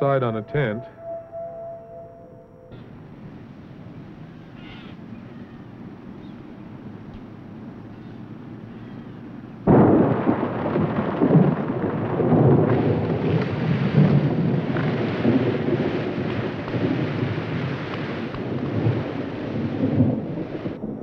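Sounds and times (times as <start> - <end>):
thunder rumbling: 0.0 - 21.0
heavy rain: 2.9 - 21.0
thunder crack: 9.6 - 21.0.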